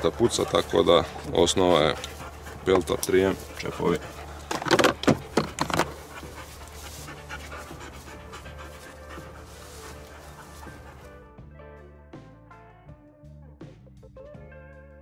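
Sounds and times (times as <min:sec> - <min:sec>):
dog panting: 0:00.0 - 0:11.2
soft background music: 0:00.0 - 0:15.0.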